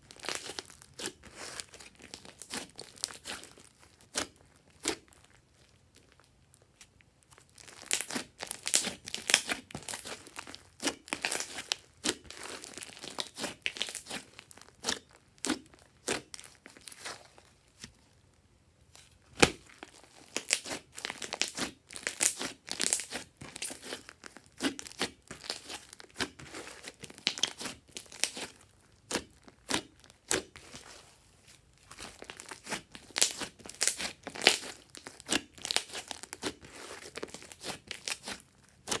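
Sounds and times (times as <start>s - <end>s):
slime sticky crackles and pops: 0.2s - 17.1s, 19.3s - 30.8s, 31.9s - 39.0s.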